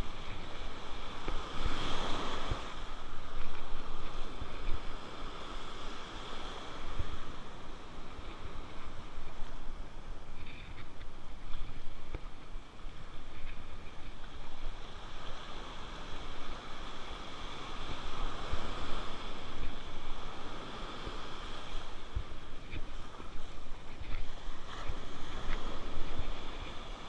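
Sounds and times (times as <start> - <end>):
surf washing in: 0.0 - 27.0
wind buffeting microphone: 0.0 - 27.0.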